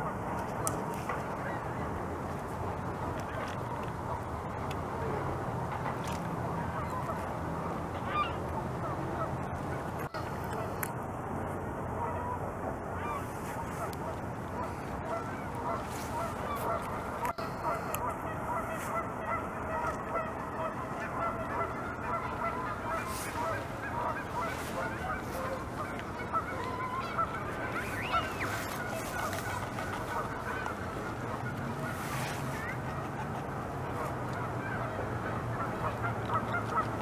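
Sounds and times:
beaver gnawing a branch: 0:02.1 - 0:04.8, 0:21.0 - 0:34.6
chorus of birds calling: 0:13.0 - 0:37.0.

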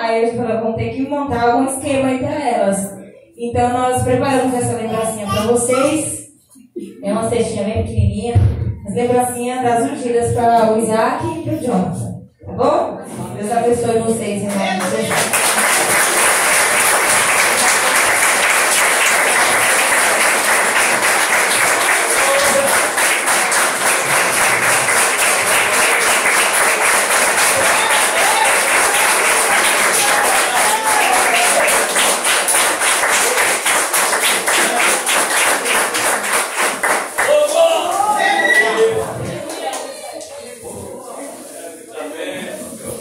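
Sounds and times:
congregation applauding: 0:14.6 - 0:40.4
voices calling out: 0:37.2 - 0:40.5.

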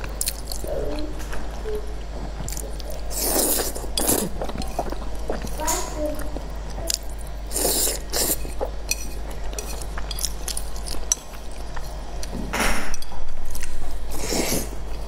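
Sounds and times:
person slurping noodles: 0:03.1 - 0:05.0, 0:07.5 - 0:08.5.

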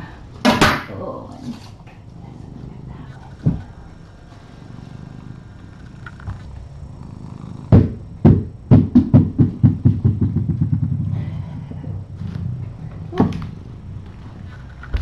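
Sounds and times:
steady low hum: 0:00.0 - 0:15.0
sharp knocks on hard surface: 0:07.7 - 0:11.0.

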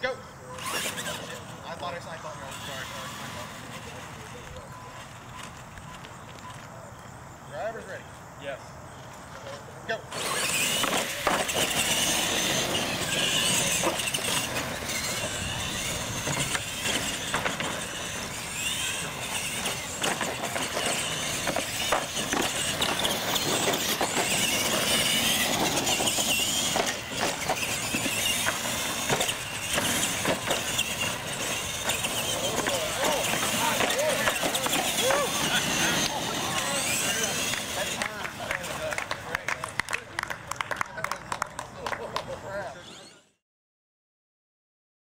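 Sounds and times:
rc truck motors whining: 0:00.2 - 0:39.8, 0:41.0 - 0:43.4
tyre noise on concrete: 0:09.4 - 0:39.7.

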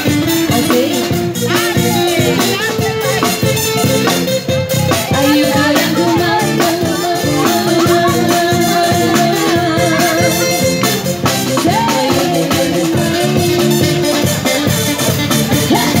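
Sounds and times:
live band drums and guitars: 0:00.0 - 0:16.0
women singing: 0:00.5 - 0:03.0, 0:04.9 - 0:14.0, 0:15.5 - 0:16.0.

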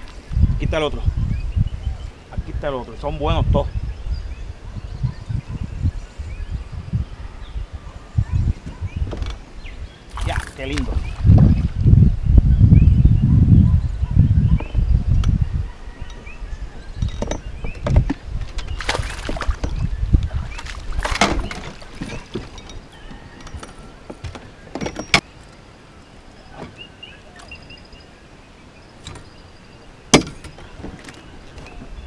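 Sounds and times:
fish splashing at surface: 0:18.8 - 0:19.8
knocks against metal boat: 0:20.6 - 0:22.7, 0:30.1 - 0:31.2.

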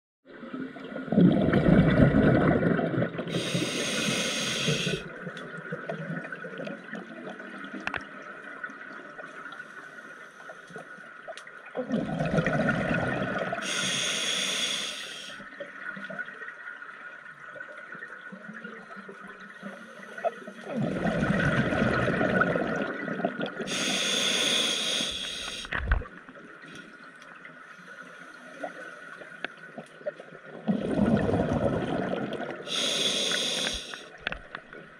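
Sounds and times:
exhaled bubbles rushing: 0:00.9 - 0:03.6, 0:11.8 - 0:13.6, 0:20.7 - 0:23.7, 0:30.6 - 0:32.7
regulator hiss: 0:03.3 - 0:05.0, 0:13.6 - 0:15.4, 0:23.7 - 0:25.8, 0:32.7 - 0:34.1.

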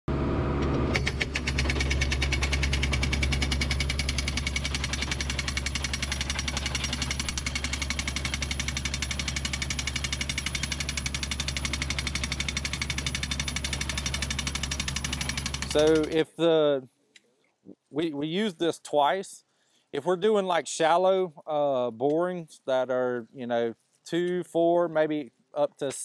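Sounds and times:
drill rig engine hum: 0:00.1 - 0:16.2.

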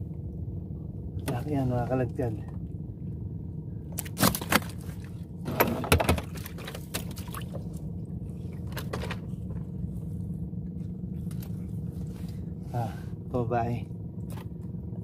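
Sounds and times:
steady low hum: 0:00.0 - 0:15.0
water splashing: 0:06.2 - 0:07.8.

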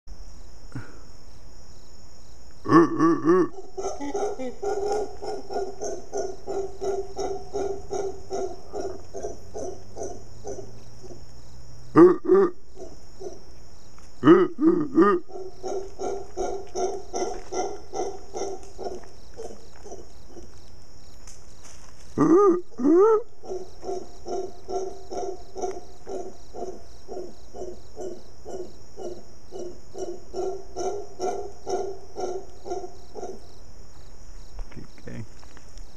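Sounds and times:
high insect hum: 0:00.1 - 0:35.9
howler monkey grunting calls: 0:02.6 - 0:13.4, 0:14.2 - 0:20.5, 0:22.2 - 0:33.4.

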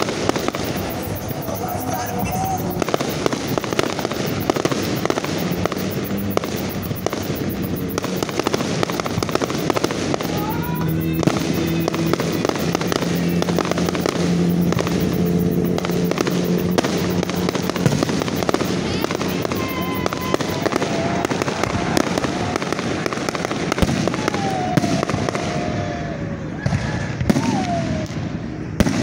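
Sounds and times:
fireworks bangs pops and crackles: 0:00.0 - 0:29.0.

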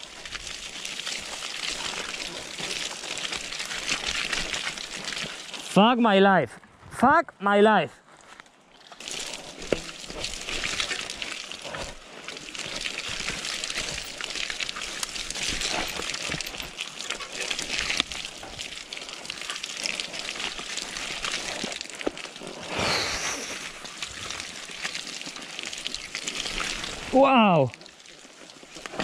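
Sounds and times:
bike clicking and rattling: 0:08.9 - 0:18.3
bike tyres rushing through mud: 0:09.0 - 0:29.0.

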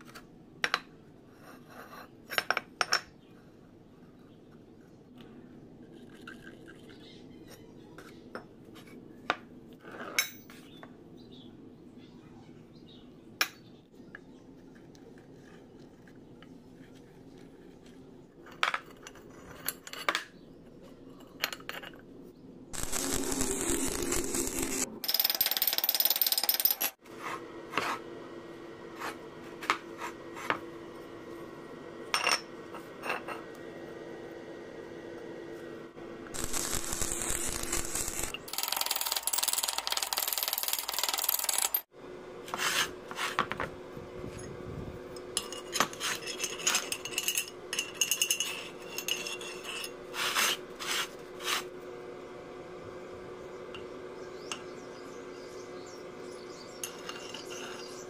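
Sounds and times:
loud harsh noise: 0:22.8 - 0:24.9
steel pieces clinking together: 0:45.3 - 0:50.0, 0:56.8 - 0:58.0.

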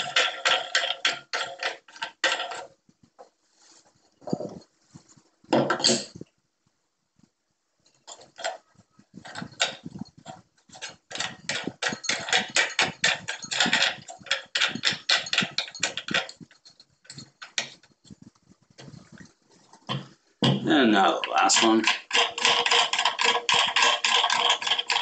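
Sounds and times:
glass lamp shade scraping and clicking: 0:21.2 - 0:25.0.

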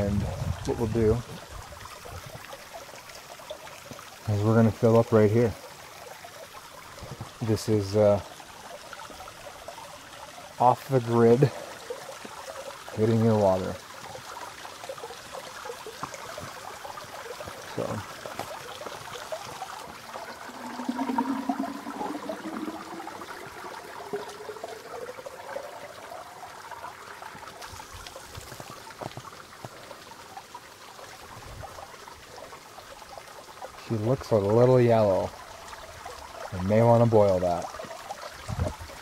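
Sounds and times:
water filling plastic bottle: 0:13.6 - 0:30.5.

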